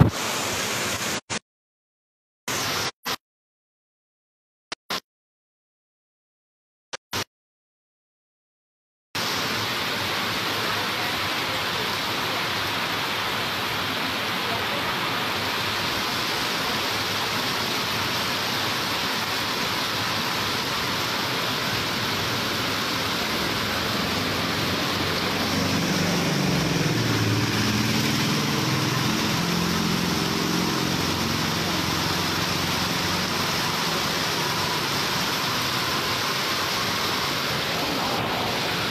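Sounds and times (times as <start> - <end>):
heavy rain pouring: 0.0 - 1.2, 9.2 - 38.9
auto-rickshaw engine: 10.2 - 38.9.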